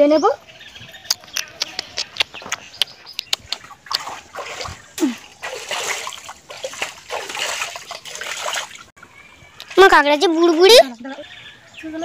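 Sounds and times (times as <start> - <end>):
water splashing and sloshing: 3.3 - 9.0, 9.6 - 11.3.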